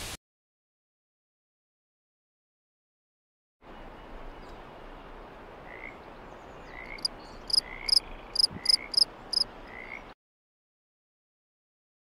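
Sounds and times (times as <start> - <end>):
steady outdoor hiss: 3.6 - 10.2
cricket chirping: 6.9 - 9.5.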